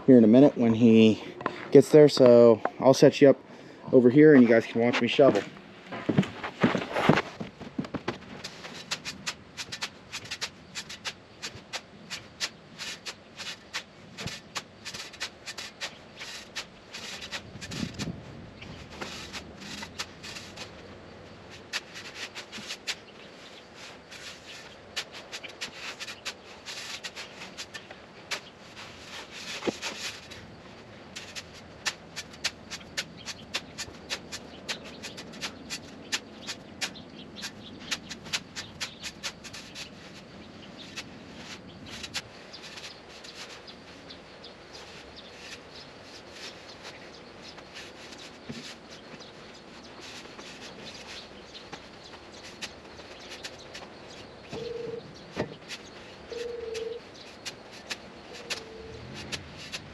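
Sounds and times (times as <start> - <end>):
shovel scraping into sand: 23.7 - 30.5, 55.6 - 59.9.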